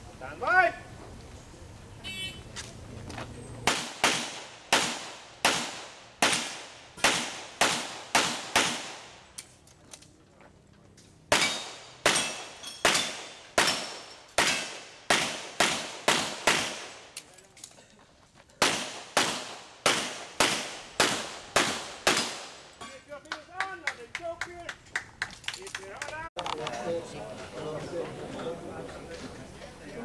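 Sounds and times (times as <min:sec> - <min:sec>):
handgun shots with ringing echo: 0:11.3 - 0:16.9.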